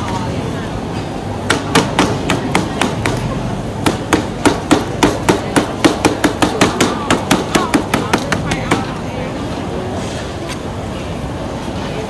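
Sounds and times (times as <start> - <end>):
mallet pounding on cutting board: 1.4 - 3.2, 3.8 - 8.9.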